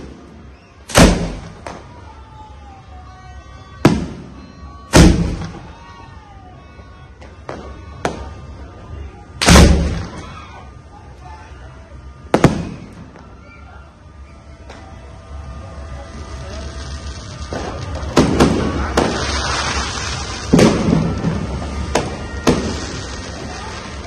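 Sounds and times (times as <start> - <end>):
firework cakes banging: 0.9 - 2.0, 3.8 - 5.8, 9.4 - 10.4, 12.3 - 13.4, 16.2 - 24.0.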